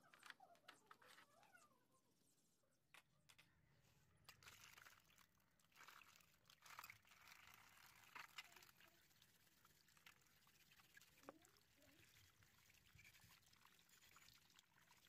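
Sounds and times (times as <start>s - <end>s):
water pouring and splashing: 4.3s - 15.0s.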